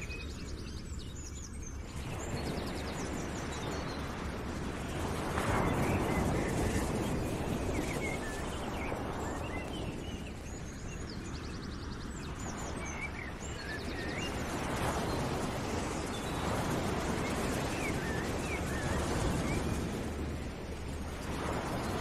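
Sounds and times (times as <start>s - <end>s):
steady rushing noise: 12.6s - 22.0s.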